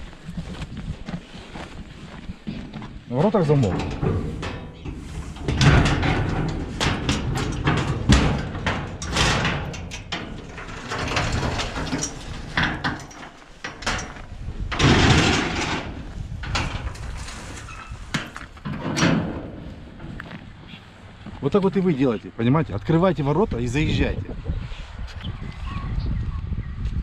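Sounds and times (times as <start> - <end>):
metal gate clanking open: 3.3 - 20.3.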